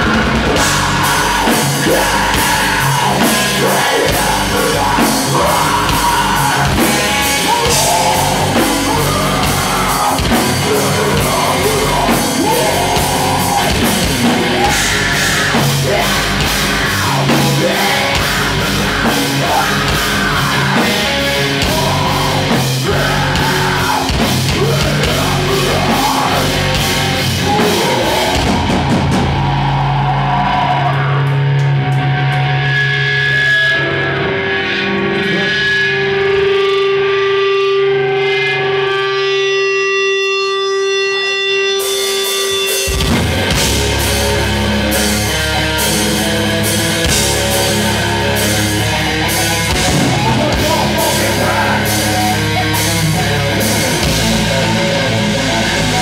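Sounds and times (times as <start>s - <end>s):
drum kit with cymbals: 0.0s - 29.7s, 41.8s - 56.0s
bass guitar: 0.0s - 56.0s
distorted electric guitars: 0.0s - 56.0s
vocals: 0.0s - 56.0s.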